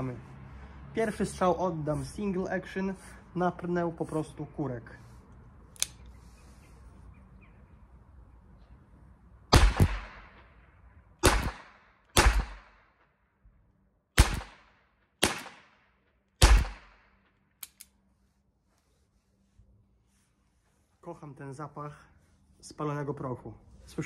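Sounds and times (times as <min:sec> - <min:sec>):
revolver gunshots with echo: 0:09.5 - 0:10.5, 0:11.2 - 0:12.9, 0:14.2 - 0:17.1.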